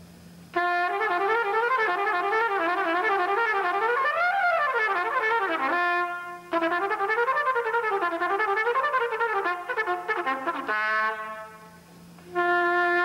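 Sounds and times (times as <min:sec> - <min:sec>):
solo trumpet playing: 0:00.5 - 0:13.0.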